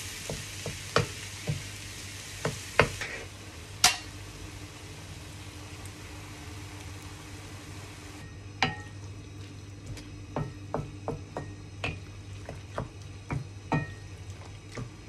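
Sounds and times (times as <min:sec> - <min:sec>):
food sizzling in a frying pan: 0:00.0 - 0:15.0
wooden spoon scraping a pan: 0:02.8 - 0:03.4.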